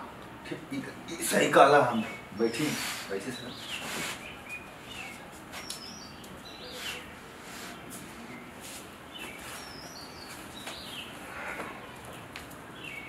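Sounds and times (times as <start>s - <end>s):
birds chirping: 0.4s - 13.0s.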